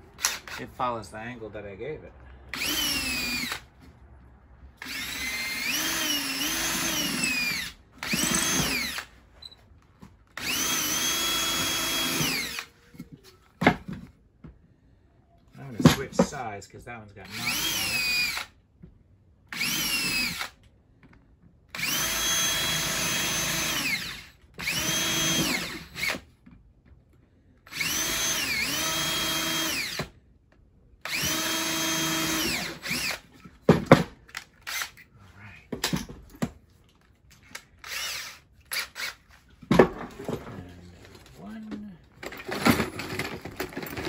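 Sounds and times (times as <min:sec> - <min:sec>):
cordless drill whine: 0:00.2 - 0:00.7, 0:02.5 - 0:03.7, 0:04.8 - 0:09.6, 0:10.3 - 0:13.1, 0:17.3 - 0:18.6, 0:19.5 - 0:20.6, 0:21.7 - 0:26.3, 0:27.7 - 0:30.1, 0:31.0 - 0:33.5, 0:34.3 - 0:35.0, 0:37.5 - 0:39.4.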